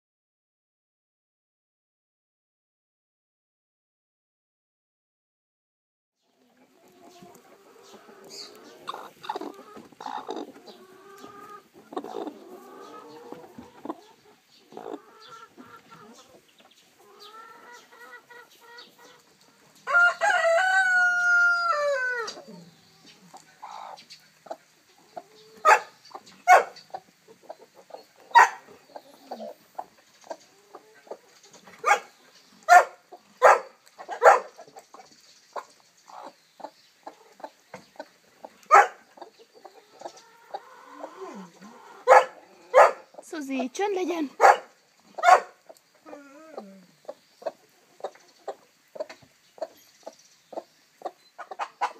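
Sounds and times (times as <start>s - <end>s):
hens clucking: 6.3s - 51.9s
rooster crowing: 19.8s - 22.4s.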